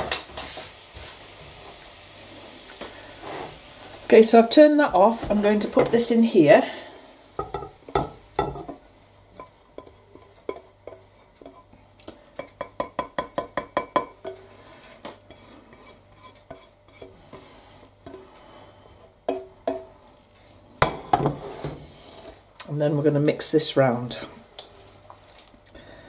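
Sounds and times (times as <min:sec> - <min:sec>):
spatula knocking frying pan: 0:07.4 - 0:08.8, 0:09.4 - 0:11.6, 0:12.4 - 0:14.4, 0:19.3 - 0:19.9.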